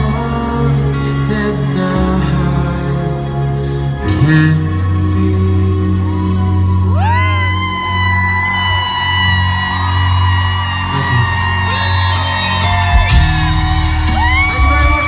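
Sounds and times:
live band music: 0:08.2 - 0:15.0
drums and cymbals: 0:12.6 - 0:15.0.

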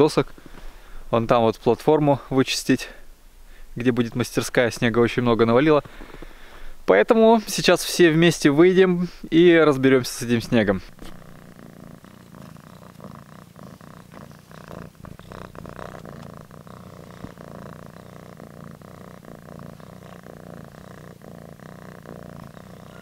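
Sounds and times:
cat purring: 0:03.9 - 0:23.0
soft clicks and rustles: 0:10.9 - 0:11.4.

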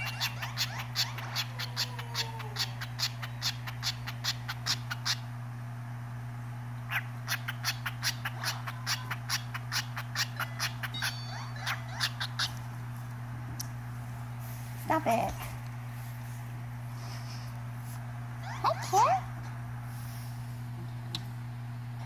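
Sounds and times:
cockatiel chirping: 0:00.0 - 0:05.2, 0:06.9 - 0:12.6
steady low hum: 0:00.0 - 0:22.0.

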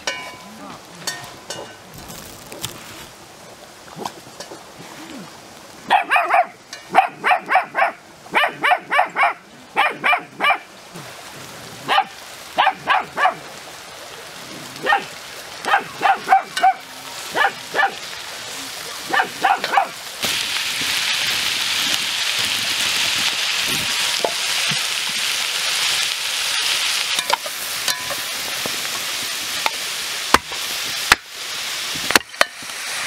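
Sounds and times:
small dog yapping: 0:15.7 - 0:16.8.

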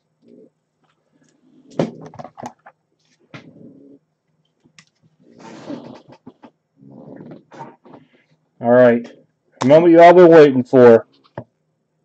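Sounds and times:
dog snorting: 0:03.4 - 0:04.0.

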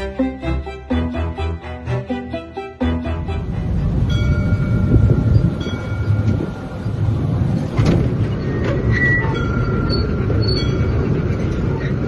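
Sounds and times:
miniature train rumbling: 0:03.1 - 0:12.0
wheel squeal: 0:08.1 - 0:12.0.

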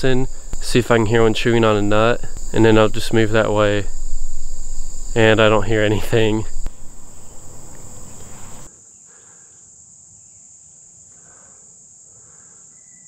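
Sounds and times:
rustling: 0:00.0 - 0:08.7
insects droning: 0:00.0 - 0:13.0.

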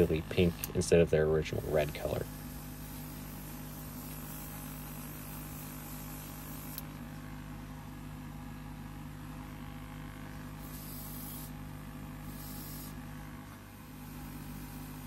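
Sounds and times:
constant hiss: 0:00.0 - 0:06.9
low electrical hum: 0:00.0 - 0:15.0.

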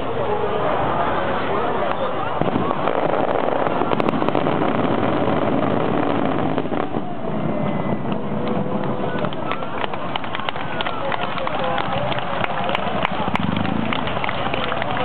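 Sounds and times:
fireworks crackling and roaring: 0:00.0 - 0:15.0.

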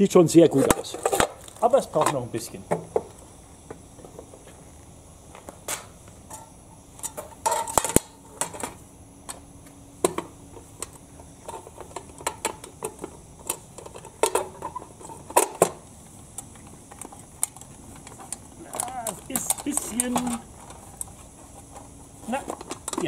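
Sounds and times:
metal mess tin clinking and rattling: 0:07.0 - 0:08.8, 0:10.8 - 0:15.8, 0:16.9 - 0:23.0.

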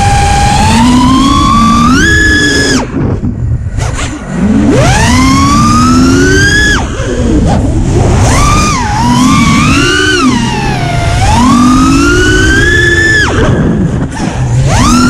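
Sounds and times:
drone motors whining: 0:00.0 - 0:15.0
wind noise: 0:00.0 - 0:15.0.

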